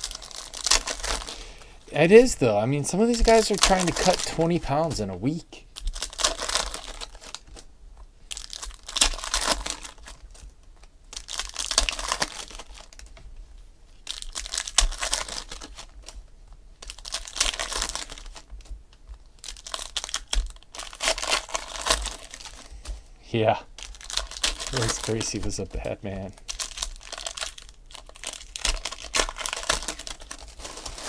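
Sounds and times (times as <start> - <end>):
trading cards rustling: 0.0 - 7.6, 23.8 - 31.0.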